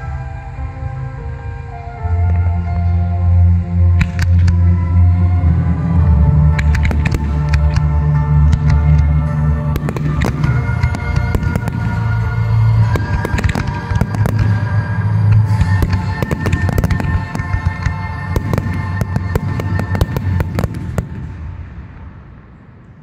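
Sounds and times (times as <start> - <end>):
loud music: 0.0 - 21.6
fireworks bangs and crackling: 6.6 - 22.8.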